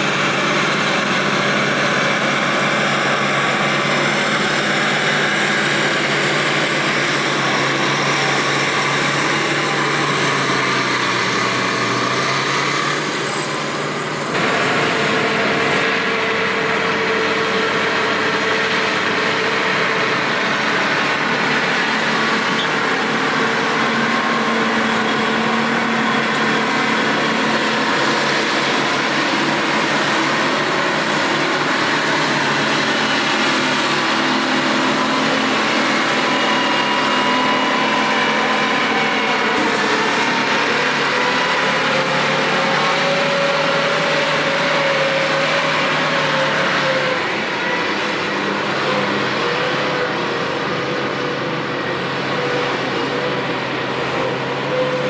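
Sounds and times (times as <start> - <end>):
heavy diesel engines running hard: 0.0 - 55.0.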